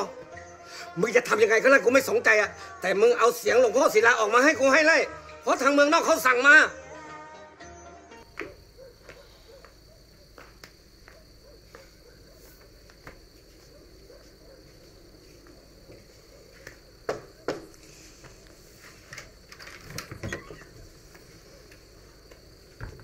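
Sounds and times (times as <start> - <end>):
crickets chirring: 0.0 - 6.7, 7.6 - 23.0
soft footsteps: 8.2 - 19.5.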